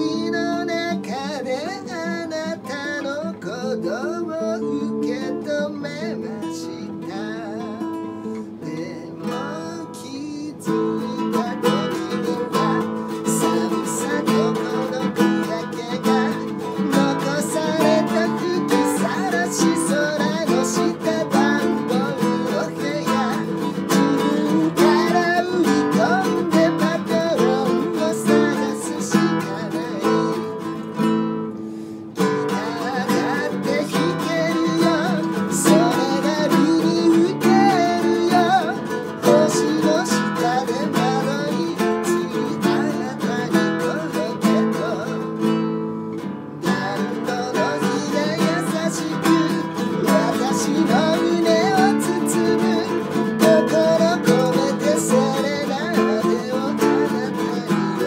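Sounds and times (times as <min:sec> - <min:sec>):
man singing: 0:00.0 - 0:31.5, 0:32.1 - 0:58.0
strummed nylon-string guitar: 0:00.0 - 0:58.0.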